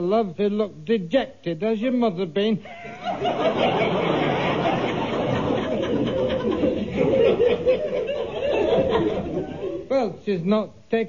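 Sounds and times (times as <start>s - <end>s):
studio audience laughing: 2.7s - 9.9s.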